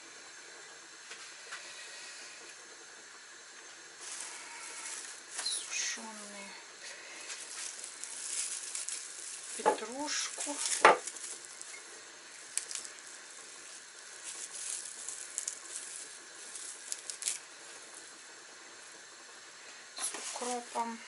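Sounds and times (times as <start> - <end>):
herbs rustling and crackling: 3.9 - 21.0
plastic container handled: 7.2 - 17.5.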